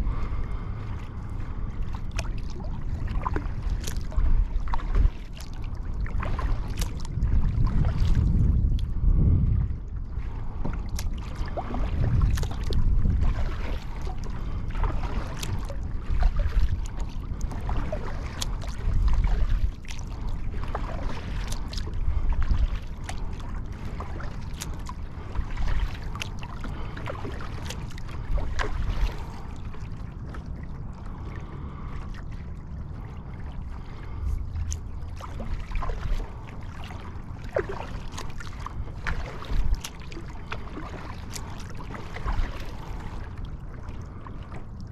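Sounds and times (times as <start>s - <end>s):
water lapping against kayak hull: 0.0s - 44.9s
wind buffeting microphone: 0.0s - 44.9s.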